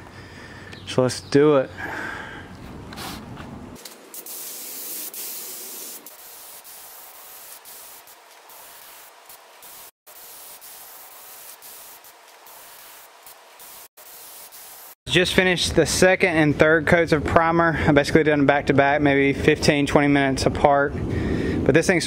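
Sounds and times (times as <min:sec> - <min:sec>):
spray gun hissing: 0:03.9 - 0:15.0.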